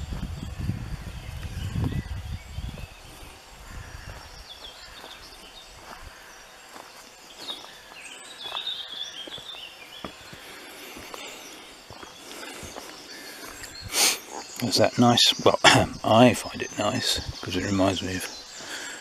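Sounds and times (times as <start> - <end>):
birds chirping: 0.0 - 19.0
footsteps crunching on leaves: 2.5 - 14.6.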